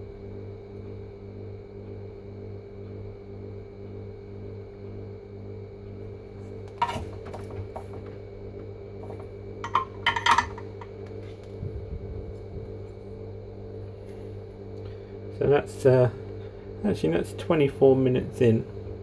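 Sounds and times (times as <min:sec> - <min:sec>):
steady hum: 0:00.0 - 0:19.0
tools clinking on workbench: 0:09.6 - 0:10.7.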